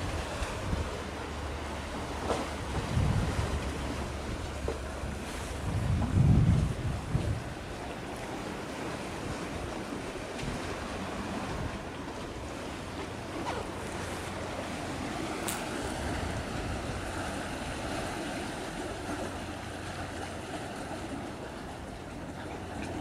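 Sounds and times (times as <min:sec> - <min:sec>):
sea wash: 0:00.0 - 0:23.0
wind on microphone: 0:02.6 - 0:04.4, 0:05.1 - 0:07.9, 0:15.1 - 0:18.2.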